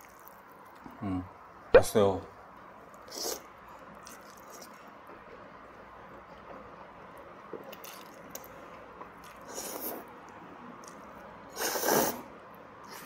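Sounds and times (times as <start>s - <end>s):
noodles being slurped: 9.2s - 10.1s, 10.8s - 12.2s.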